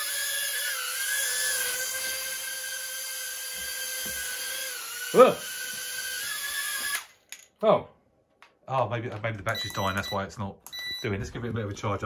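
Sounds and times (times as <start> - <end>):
mini drone whining: 0.0 - 7.1.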